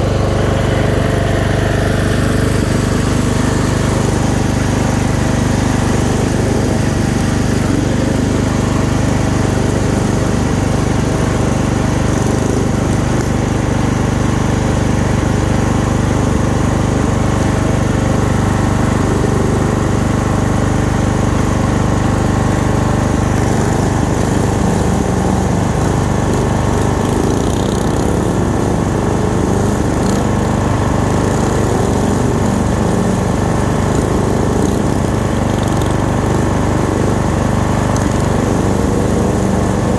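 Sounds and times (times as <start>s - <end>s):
lawn tractor engine running: 0.0s - 39.9s.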